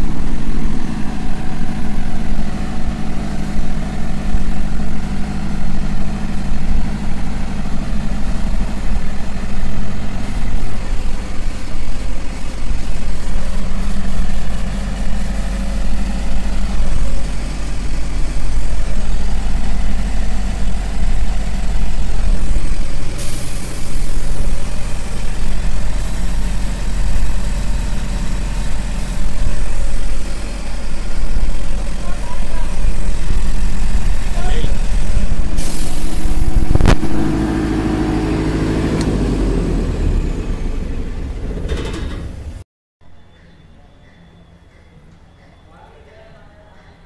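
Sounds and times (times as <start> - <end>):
diesel generator humming: 0.0 - 42.6
burst of hiss: 5.4 - 38.0.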